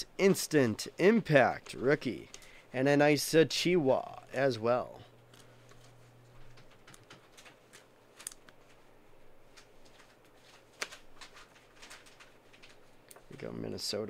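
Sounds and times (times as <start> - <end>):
cards and plastic sleeves rustling: 5.3 - 13.6.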